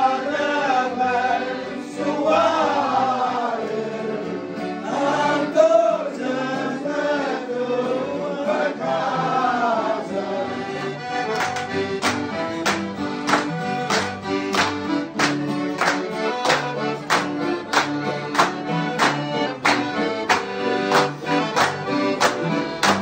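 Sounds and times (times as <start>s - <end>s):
accordion: 0.0s - 23.0s
acoustic guitar: 0.0s - 23.0s
hand claps: 11.2s - 23.0s.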